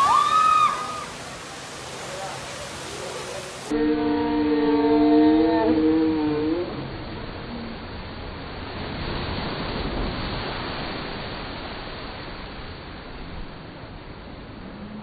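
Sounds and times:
water rushing down a slide: 0.0s - 3.8s, 6.2s - 13.8s.

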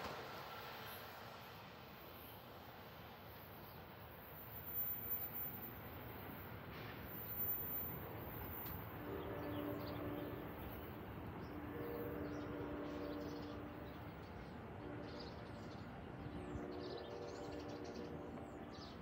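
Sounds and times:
distant train horn: 7.8s - 19.0s.

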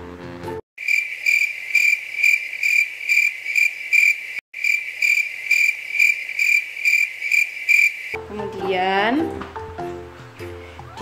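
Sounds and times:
cricket chirping: 0.8s - 8.2s.

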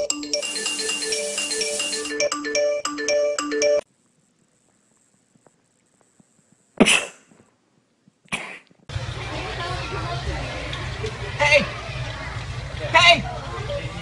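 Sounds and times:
phone ringtone melody: 0.0s - 3.9s
person sneezing: 6.8s - 7.3s, 8.3s - 8.7s.

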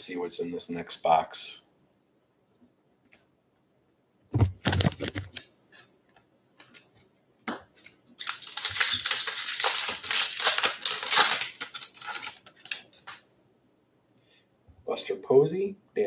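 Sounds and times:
thumps and rustles: 4.3s - 5.4s
foil wrapper crinkling and tearing: 7.8s - 13.2s.

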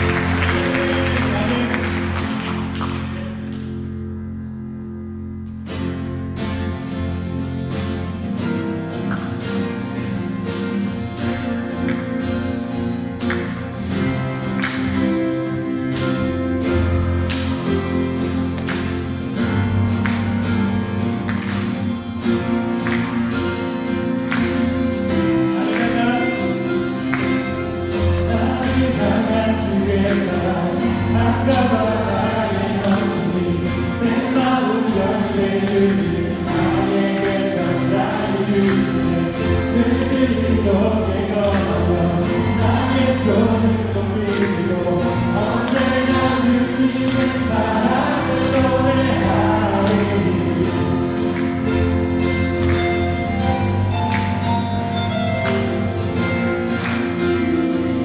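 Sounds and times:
strummed guitar praise song: 0.0s - 58.0s
group of voices singing: 28.0s - 51.3s.

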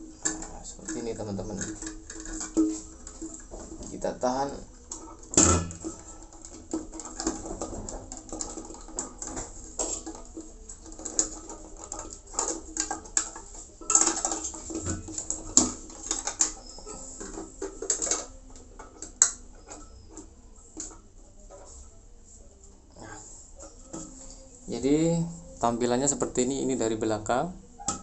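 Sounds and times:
plastic clicks and rattles: 4.6s - 21.8s.

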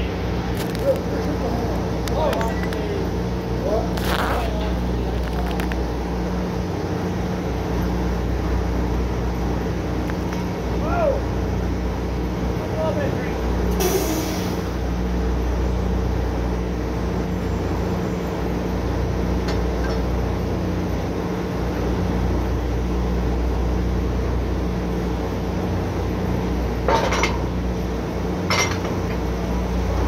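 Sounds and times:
drilling rig machinery humming: 0.0s - 30.0s
metal-on-metal clanks: 26.9s - 27.5s, 28.5s - 29.0s.

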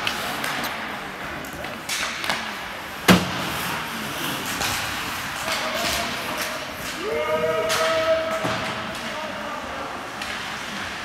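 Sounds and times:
sticks puck and skates on ice: 0.0s - 11.0s
loud bang against rink boards: 3.0s - 3.6s, 7.6s - 9.1s.

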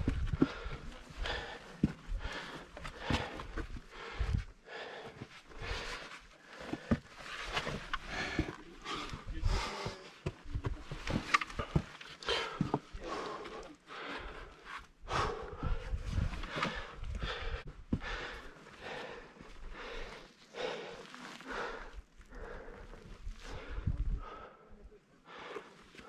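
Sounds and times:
heavy uneven breathing: 0.0s - 26.0s.

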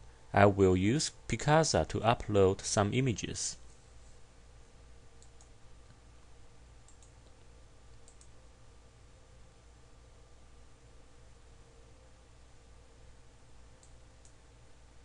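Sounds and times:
low steady hum: 0.0s - 15.0s
computer mouse clicks: 5.2s - 5.6s, 6.8s - 8.4s, 13.8s - 14.4s.

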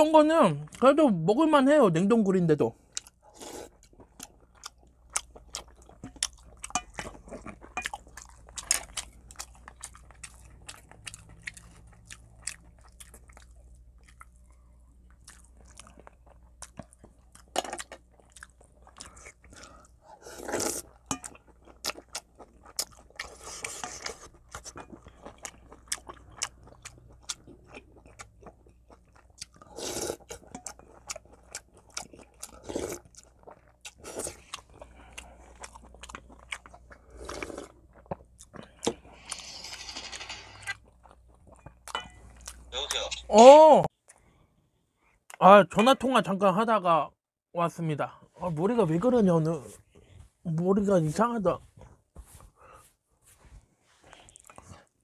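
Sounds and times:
wet chewing and lip-smacking: 2.9s - 20.0s, 20.8s - 39.0s, 40.6s - 42.7s, 54.1s - 55.0s.

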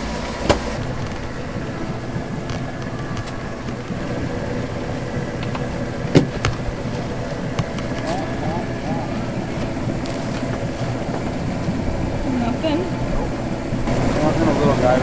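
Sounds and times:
boat engine idling: 0.0s - 15.0s.

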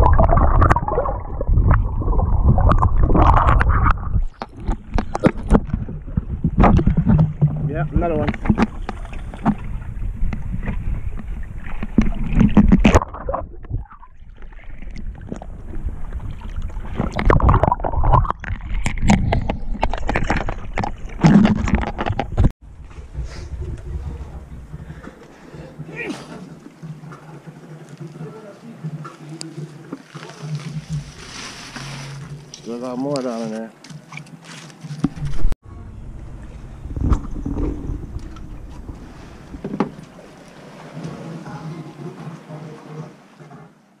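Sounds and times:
wind rumbling on microphone: 0.0s - 26.0s, 35.1s - 40.5s
water sloshing against boat: 0.0s - 44.0s
wind buffeting microphone: 22.2s - 25.3s, 36.1s - 40.1s.

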